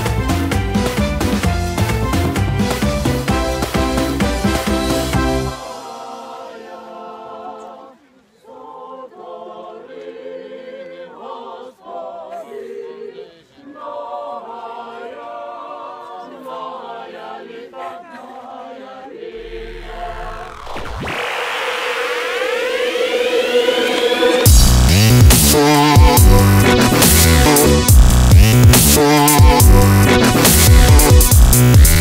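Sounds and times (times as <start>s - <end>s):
choir singing unaccompanied: 2.2s - 28.0s, 28.6s - 32.0s
electronic music with deep bass: 19.4s - 32.0s.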